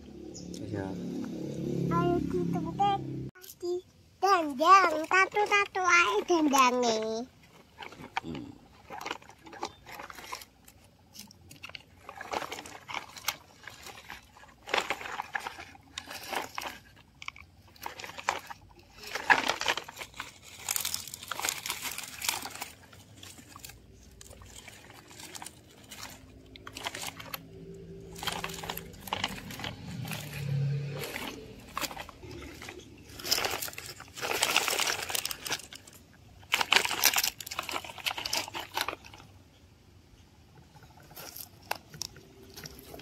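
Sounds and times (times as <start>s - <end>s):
toy truck wheels crunching dirt: 1.1s - 39.6s, 40.2s - 43.0s.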